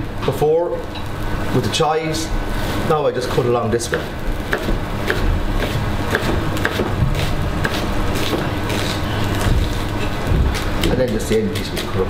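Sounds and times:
steady low hum: 0.0 - 12.0
knife chopping on plastic board: 3.9 - 8.9.

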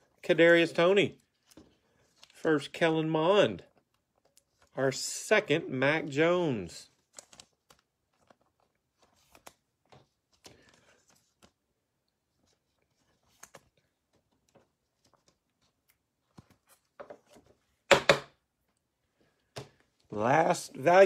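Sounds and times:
cards clicking and rustling: 7.0 - 11.6, 12.4 - 18.1.

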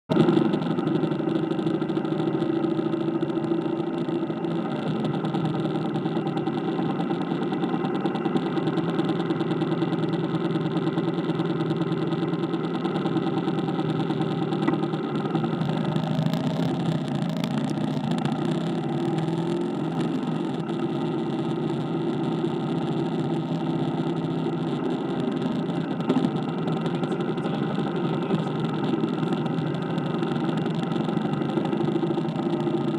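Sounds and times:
motorcycle engine running: 0.1 - 32.9.

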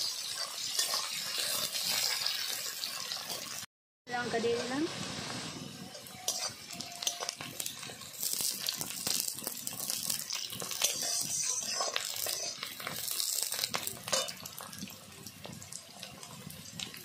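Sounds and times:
metal spatula scraping pan: 0.0 - 3.6, 5.9 - 9.1, 9.7 - 14.4
onions sizzling in hot oil: 0.0 - 17.0.

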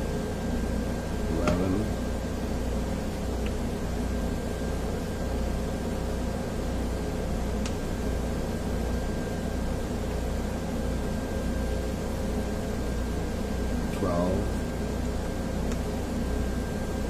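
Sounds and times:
faint high whine: 0.0 - 17.0
machine hum and hiss: 0.0 - 17.0.

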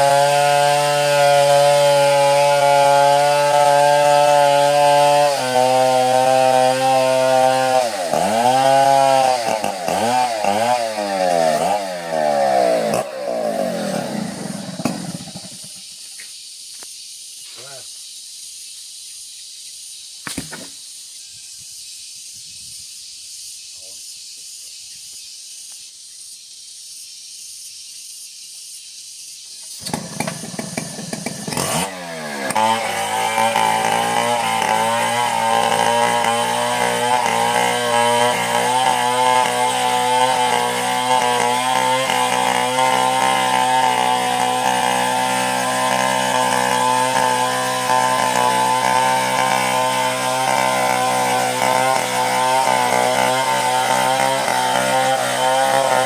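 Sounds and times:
chainsaw starting and revving: 0.0 - 16.0, 29.7 - 56.0
steady high hiss: 15.5 - 29.9.

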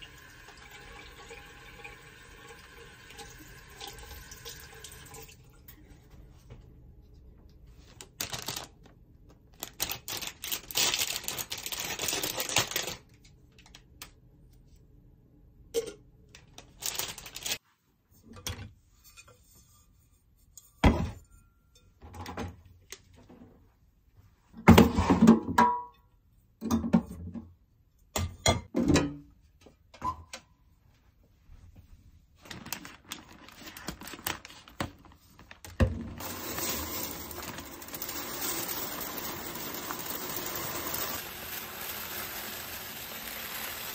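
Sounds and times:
plastic packaging rustling: 7.7 - 14.0, 16.4 - 17.6, 32.4 - 43.9
dry rice pouring: 36.2 - 43.9.

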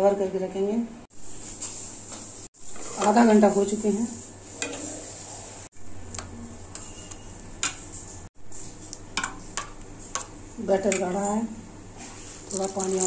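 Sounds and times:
spoon stirring batter in bowl: 6.0 - 11.4, 12.0 - 13.0.

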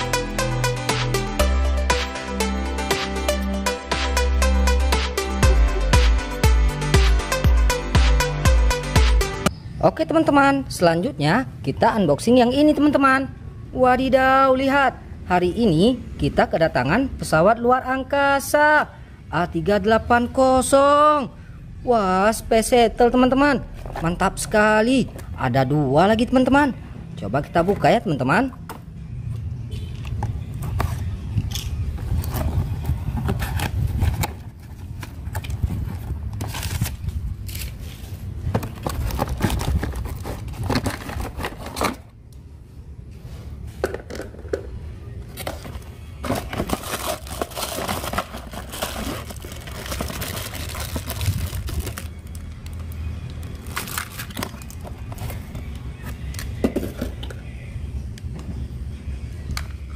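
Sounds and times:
cardboard box being opened: 32.2 - 37.0, 37.6 - 42.0, 45.4 - 52.1
plastic and paper packing crinkling: 32.2 - 42.1, 45.4 - 52.9, 53.6 - 56.1.

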